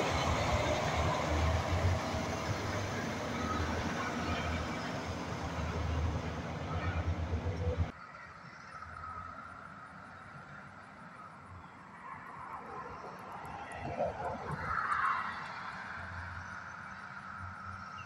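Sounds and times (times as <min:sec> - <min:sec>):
diesel truck engine pulling away: 0:00.0 - 0:07.9
faint distant traffic: 0:00.0 - 0:18.0.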